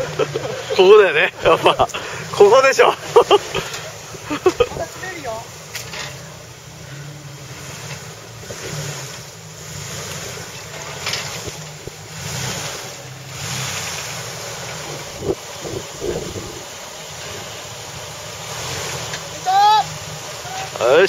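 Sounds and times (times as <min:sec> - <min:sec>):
engine running at low revs: 0:00.0 - 0:21.0
wind buffeting microphone: 0:14.8 - 0:16.7.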